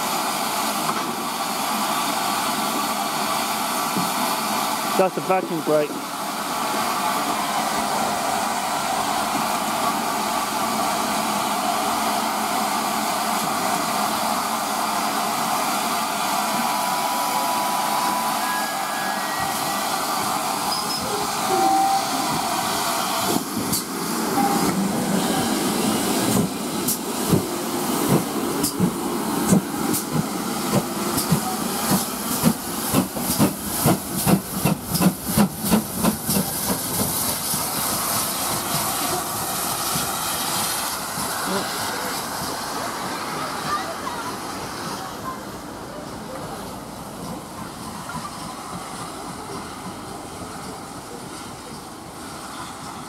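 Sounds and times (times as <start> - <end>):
steam hissing from brake: 0.0 - 45.4
steam locomotive exhaust chuffs: 19.4 - 43.1.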